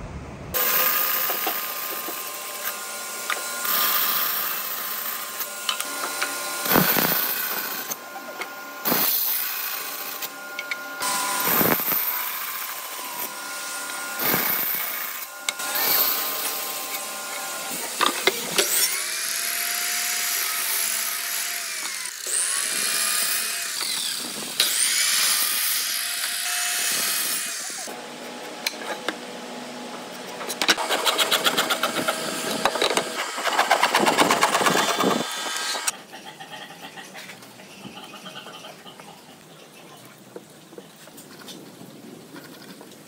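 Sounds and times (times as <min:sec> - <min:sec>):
miter saw spinning: 0:00.6 - 0:28.0, 0:30.4 - 0:36.0
bandsaw cutting wood: 0:00.6 - 0:36.0.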